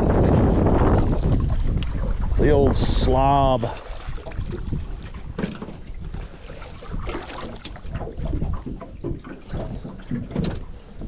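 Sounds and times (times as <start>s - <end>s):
knocks of handling in boat: 3.8s - 11.0s.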